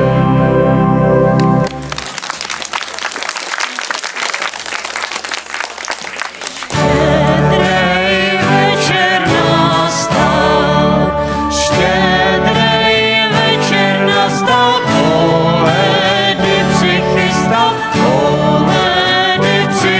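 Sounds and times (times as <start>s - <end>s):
band playing acoustic guitar keyboard: 0.0s - 2.6s, 6.4s - 19.9s
audience applauding: 1.4s - 7.1s
person singing with band: 6.7s - 19.9s.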